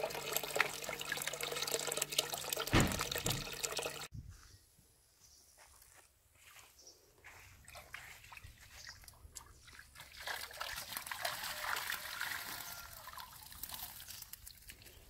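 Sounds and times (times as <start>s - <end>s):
water splashing and trickling: 0.0s - 4.1s, 7.2s - 15.0s.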